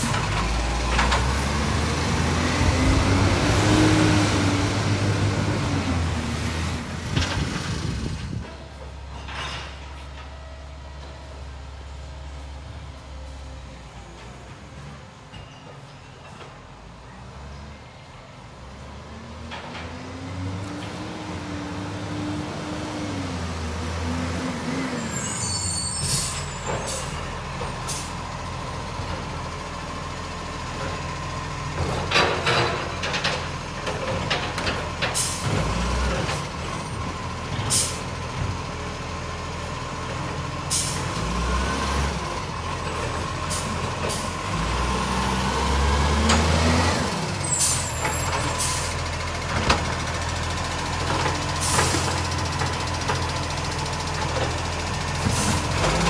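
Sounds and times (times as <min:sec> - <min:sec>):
garbage truck diesel engine revving: 0:00.0 - 0:08.4, 0:18.8 - 0:56.0
air brake hisses: 0:25.2 - 0:27.2, 0:40.7 - 0:41.1.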